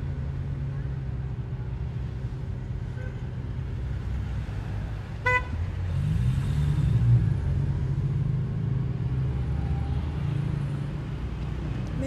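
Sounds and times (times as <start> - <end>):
car engine rumble: 0.0 - 12.0
car horn toot: 5.2 - 5.6.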